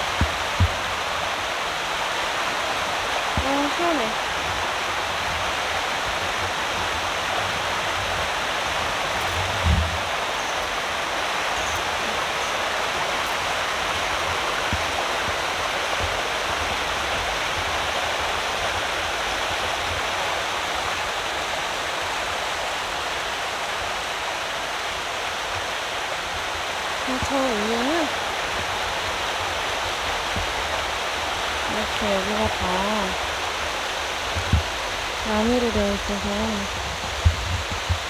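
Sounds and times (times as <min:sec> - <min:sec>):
stream rushing over rocks: 0:00.0 - 0:38.0
low thump: 0:09.6 - 0:10.0.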